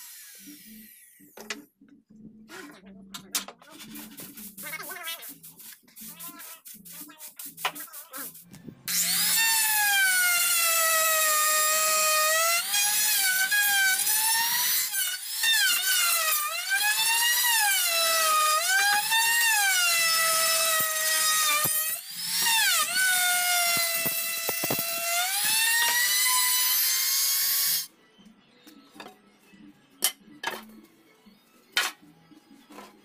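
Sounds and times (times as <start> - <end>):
electric router whine cutting wood: 8.9 - 15.9.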